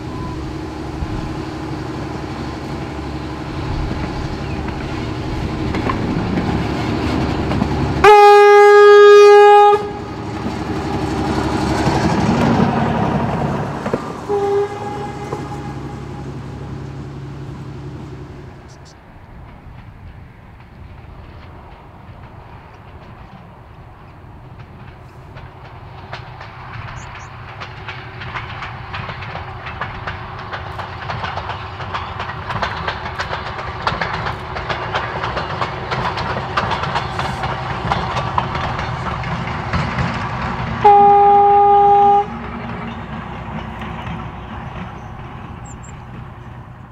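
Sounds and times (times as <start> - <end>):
rail motor engines running: 0.0 - 46.9
wheels clicking over rail joints: 0.0 - 46.9
train horn blast: 8.0 - 10.2, 14.1 - 16.8, 40.8 - 42.5.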